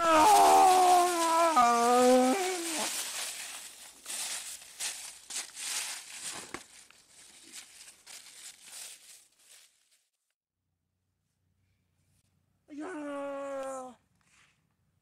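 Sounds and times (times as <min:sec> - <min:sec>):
person's drawn-out vocal cry: 0:00.0 - 0:03.0, 0:12.7 - 0:14.0
footsteps crunching through dry leaves: 0:00.0 - 0:10.2.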